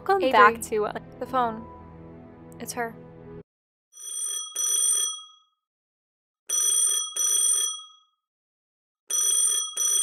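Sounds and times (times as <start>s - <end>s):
telephone ringing: 4.0s - 5.6s, 6.5s - 8.2s, 9.1s - 10.0s.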